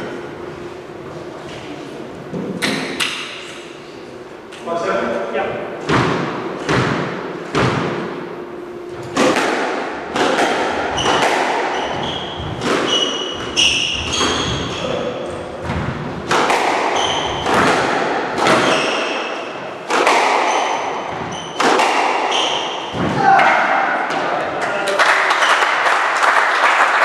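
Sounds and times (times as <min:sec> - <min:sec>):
squash ball hitting rackets and walls: 0:02.4 - 0:03.6, 0:05.8 - 0:24.4
shoes squeaking on wooden floor: 0:10.8 - 0:16.1, 0:16.9 - 0:17.6, 0:18.5 - 0:19.4, 0:20.4 - 0:21.6.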